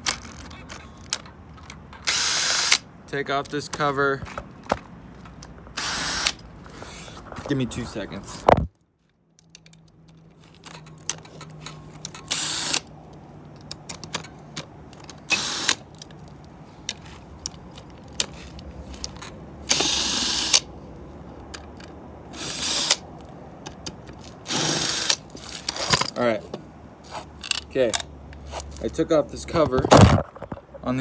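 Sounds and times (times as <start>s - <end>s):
tools clicking and knocking: 0.0s - 2.8s, 3.4s - 6.4s, 8.5s - 20.7s, 21.4s - 28.8s
ratchet wrench clicking: 19.0s - 20.7s, 22.4s - 23.0s.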